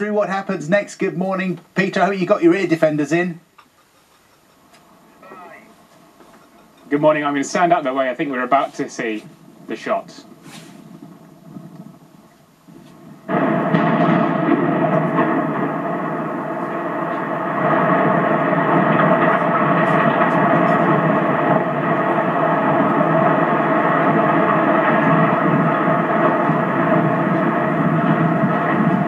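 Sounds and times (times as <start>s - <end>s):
structure collapsing: 4.4s - 29.0s
explosion roar and rumble: 4.6s - 29.0s.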